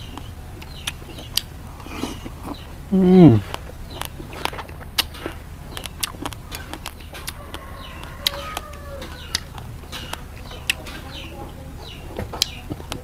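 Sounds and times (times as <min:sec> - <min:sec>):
chewing and lip smacks: 0:00.0 - 0:02.7, 0:03.4 - 0:13.0
birds chirping: 0:00.0 - 0:13.0
chicken clucking: 0:00.0 - 0:13.0.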